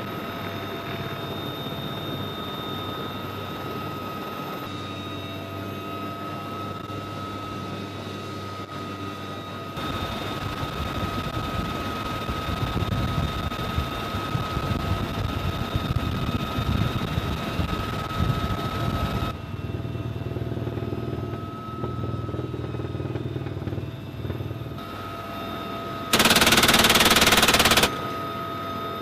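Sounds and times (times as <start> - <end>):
helicopter whine and rumble: 0.0 - 29.0
machine gun rapid burst: 26.1 - 28.0.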